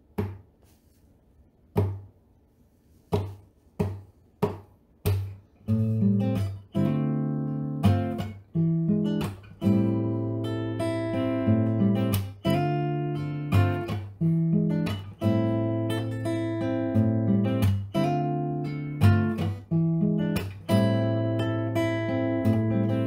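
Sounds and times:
guitar strumming chords: 5.0 - 23.0.

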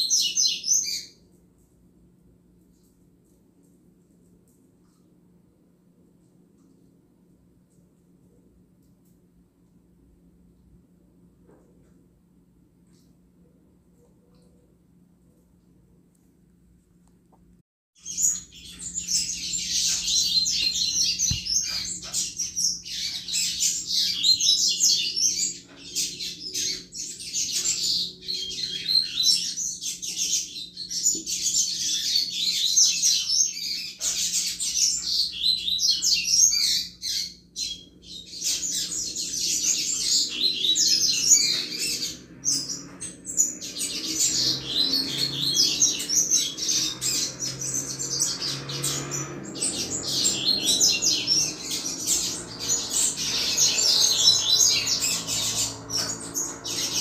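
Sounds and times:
bird twittering song: 0.0 - 1.3, 18.0 - 57.0.

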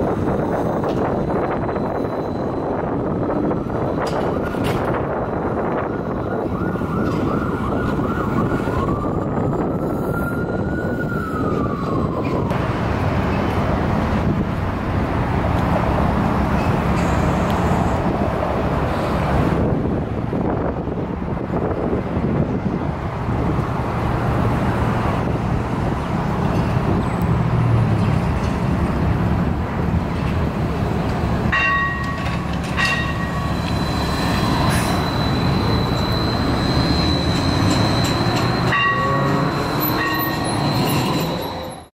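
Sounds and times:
traffic rumble: 0.0 - 41.9
thin high squeal: 33.4 - 41.9.

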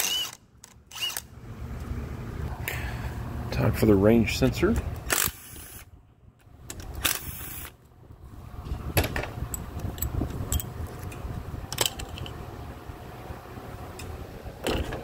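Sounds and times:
cordless power tool spinning: 0.0 - 1.3, 5.1 - 5.9, 7.0 - 7.7
low background rumble: 0.0 - 15.0.

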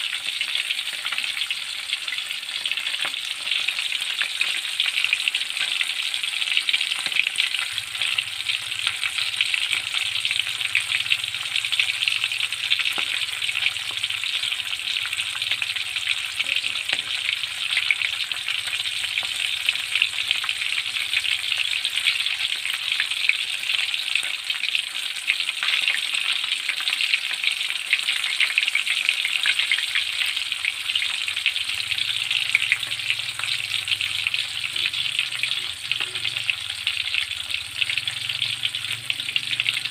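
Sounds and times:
fish frying in hot oil: 0.0 - 39.9.

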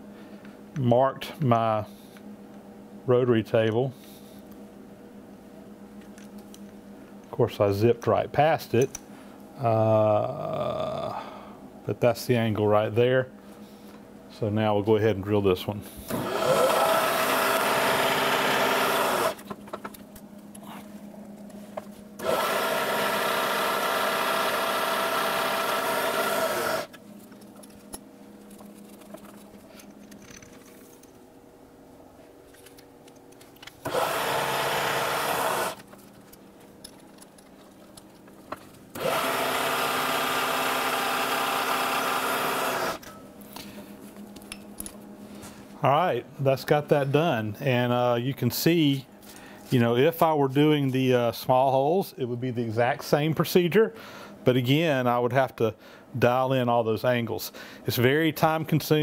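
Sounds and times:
milling machine drilling metal: 16.1 - 19.4, 22.2 - 26.9, 33.8 - 35.8, 39.0 - 43.0.

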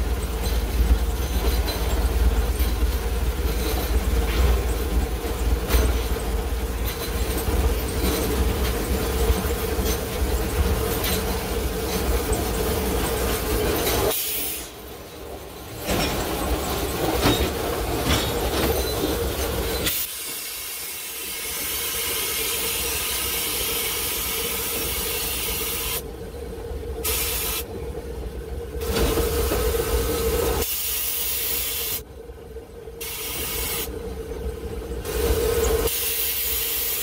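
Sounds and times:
running gear rumbling on rails: 0.0 - 30.7, 32.0 - 37.0
steam hissing: 12.8 - 14.9, 19.4 - 26.0, 27.0 - 27.7, 28.8 - 32.0, 33.0 - 33.9, 35.1 - 37.0.

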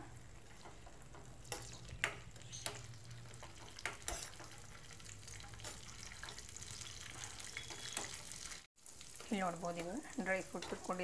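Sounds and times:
nuts frying with faint sizzle: 0.0 - 11.0
metal spoon scraping pan: 3.5 - 6.4.

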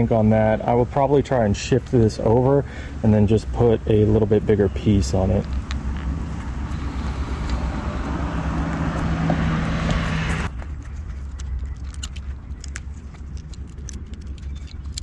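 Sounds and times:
motor humming and rushing: 5.4 - 10.6.

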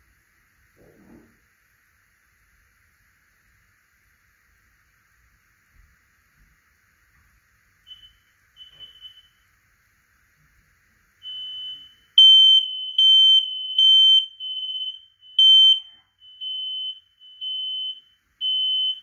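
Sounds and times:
smoke alarms beeping: 7.8 - 9.5, 11.2 - 19.0.

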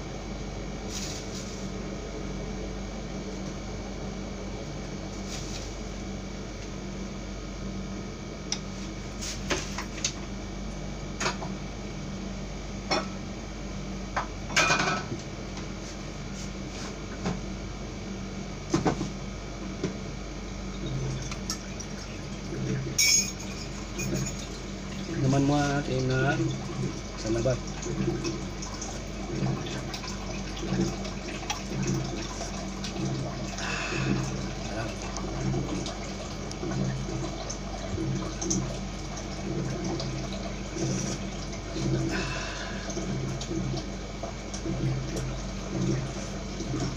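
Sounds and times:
window air conditioner hum: 0.0 - 46.9
dishes and utensils clinking: 23.0 - 24.4.

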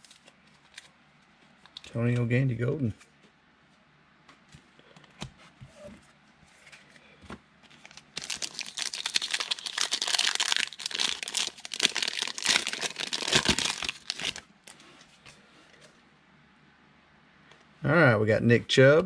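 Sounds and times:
foil wrapper tearing and crinkling: 7.7 - 14.4.

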